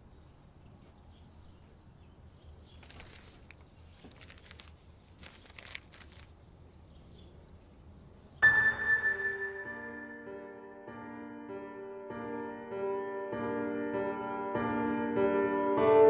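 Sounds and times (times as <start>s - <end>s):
paper crinkling and rustling: 2.6s - 6.4s.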